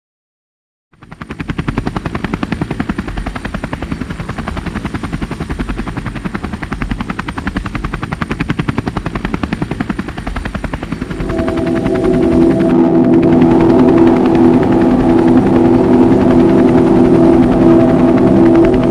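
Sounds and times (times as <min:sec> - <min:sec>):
helicopter rotor chop: 0:00.9 - 0:18.9
faint high whine: 0:10.9 - 0:18.9.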